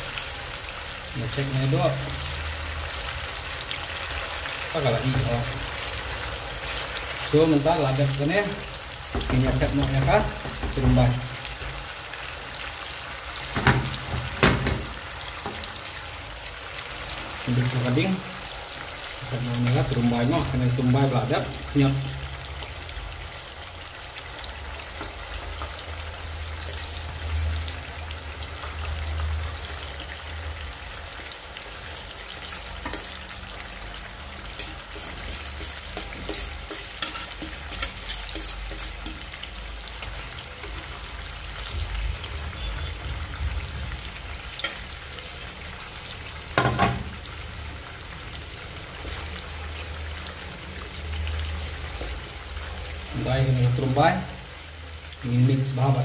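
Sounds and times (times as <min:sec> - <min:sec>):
paste sizzling in hot oil: 0:00.0 - 0:56.0
wooden spatula stirring pan: 0:08.0 - 0:11.9, 0:31.6 - 0:33.3, 0:34.4 - 0:39.4, 0:48.8 - 0:49.8
loud knock: 0:13.6 - 0:14.9.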